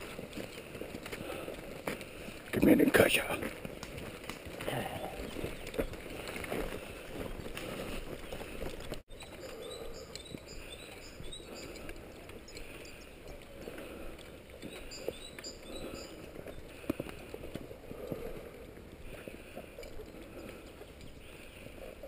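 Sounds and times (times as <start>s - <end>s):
footsteps on forest path: 0.0s - 22.0s
rustling gear: 0.0s - 22.0s
birds chirping: 4.6s - 22.0s.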